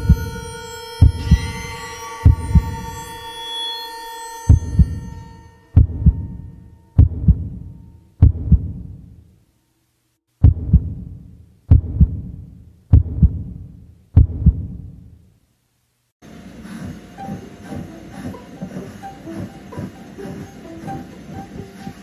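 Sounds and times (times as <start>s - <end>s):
heartbeat thumps: 0.0s - 0.4s, 1.0s - 1.5s, 2.2s - 2.8s, 4.5s - 5.1s, 5.8s - 6.4s, 7.0s - 9.2s, 10.4s - 15.1s
steady hissing noise: 14.7s - 22.0s.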